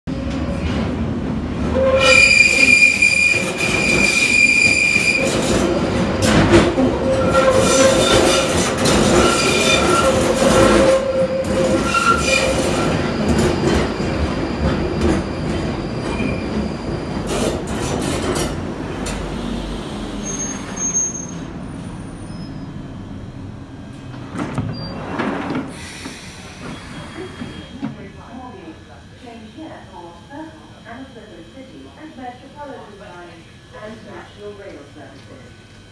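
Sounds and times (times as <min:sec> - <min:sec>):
train rumble braking: 0:00.1 - 0:27.8
train wheels squealing: 0:01.8 - 0:05.4, 0:09.1 - 0:16.9, 0:20.2 - 0:22.7.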